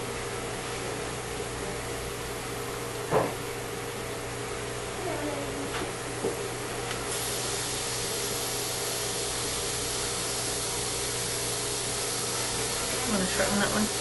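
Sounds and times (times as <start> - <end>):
electrical hum: 0.0 - 14.0
steady hiss: 7.1 - 14.0.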